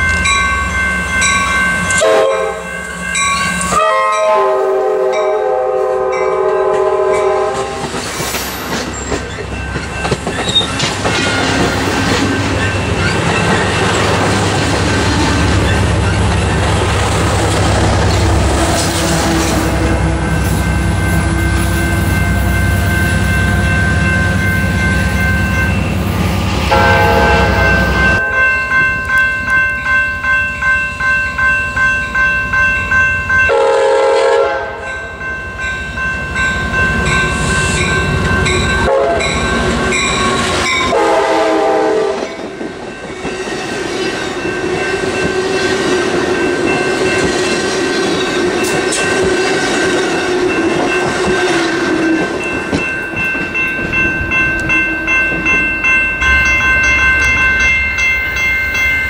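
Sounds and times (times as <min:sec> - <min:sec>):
crossing warning bell ringing: 0:00.0 - 0:59.0
train horn blasts: 0:02.0 - 0:02.7, 0:03.6 - 0:08.0, 0:18.3 - 0:22.1, 0:26.6 - 0:28.5, 0:33.5 - 0:35.0, 0:38.8 - 0:39.5, 0:40.2 - 0:42.4
train wheels clicking over rail joints: 0:07.6 - 0:19.6.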